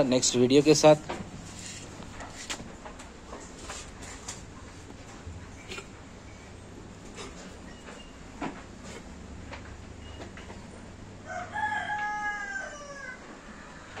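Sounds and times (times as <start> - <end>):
rooster crowing: 11.2 - 14.0.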